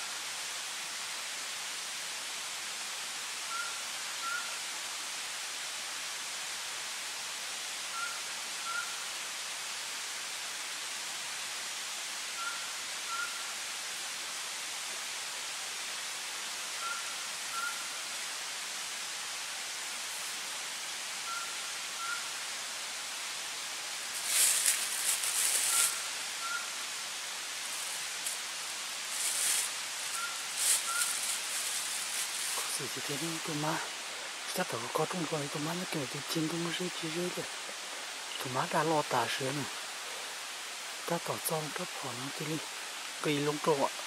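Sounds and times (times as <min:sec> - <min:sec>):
night forest hiss: 0:00.0 - 0:44.0
brush rustling: 0:24.0 - 0:38.2.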